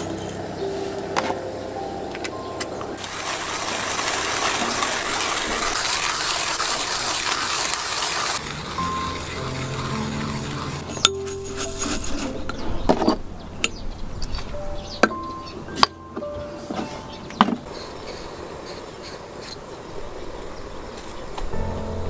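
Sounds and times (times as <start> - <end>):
hand coffee grinder grinding beans: 3.0 - 12.5.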